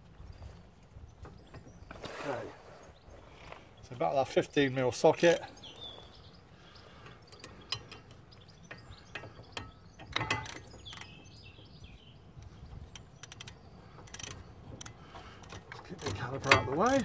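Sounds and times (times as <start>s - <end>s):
ratchet wrench clicking: 13.0s - 17.0s.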